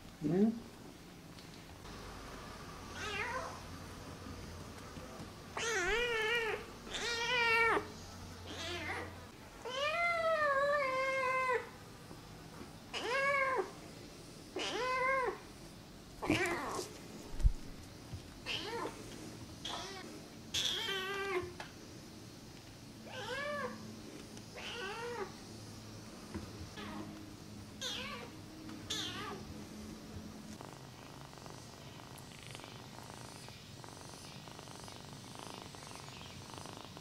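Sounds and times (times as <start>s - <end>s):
kitten meowing: 5.6s - 7.9s, 27.8s - 28.3s, 28.9s - 29.4s.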